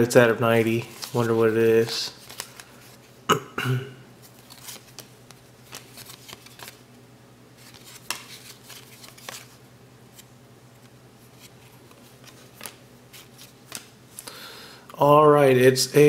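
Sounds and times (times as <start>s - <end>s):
cards flipped with soft clicks: 7.6s - 14.3s.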